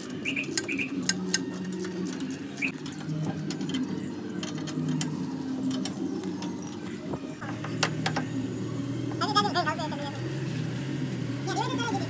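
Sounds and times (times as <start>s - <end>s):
birds chirping: 0.1s - 1.3s
birds cooing: 0.2s - 1.2s.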